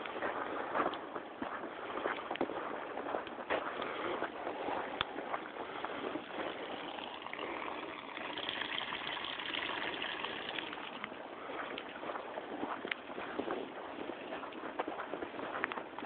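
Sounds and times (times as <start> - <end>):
water rushing through aspirator: 6.0 - 11.1.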